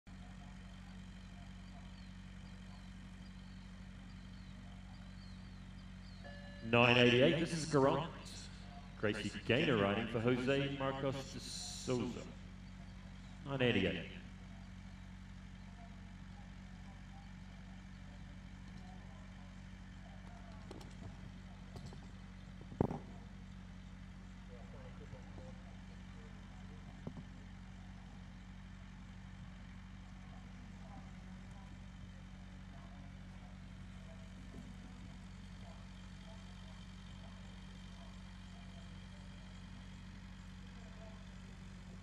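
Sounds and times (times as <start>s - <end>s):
low engine hum: 0.1s - 42.0s
steady low hum: 0.2s - 15.9s
faint bird chirps: 1.0s - 6.7s.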